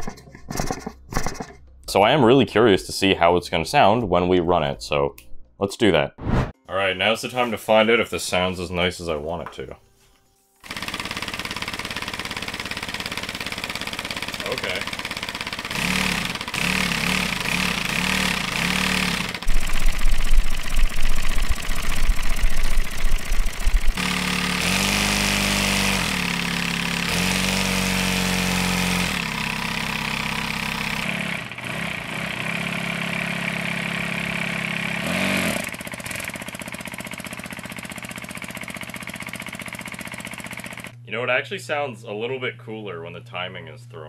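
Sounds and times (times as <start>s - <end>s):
compressed-air engine exhaust: 10.6s - 41.0s.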